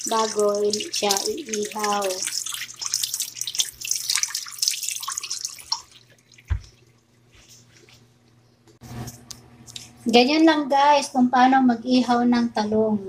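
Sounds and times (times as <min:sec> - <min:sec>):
kitchen tap running: 0:00.0 - 0:07.1.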